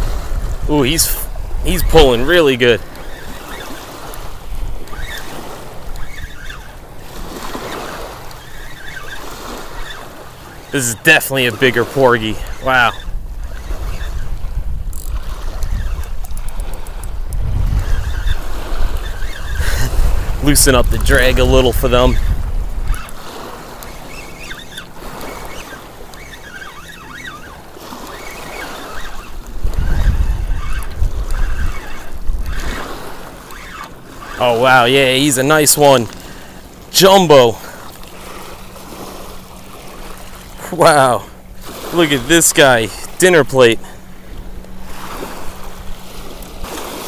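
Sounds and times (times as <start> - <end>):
wind buffeting microphone: 0.0 - 11.1, 11.7 - 36.9
small waves lapping on pebbles: 0.0 - 47.0.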